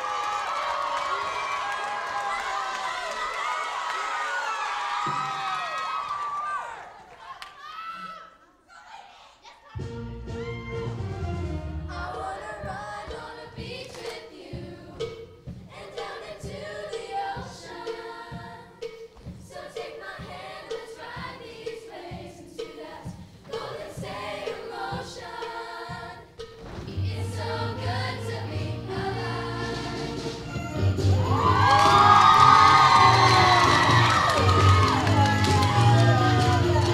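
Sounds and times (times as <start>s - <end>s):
instrumental accompaniment with beat: 9.8s - 36.9s
choir singing: 11.8s - 36.9s.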